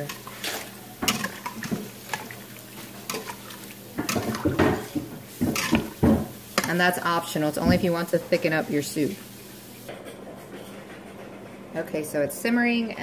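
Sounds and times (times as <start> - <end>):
broth sloshing: 0.0 - 6.8.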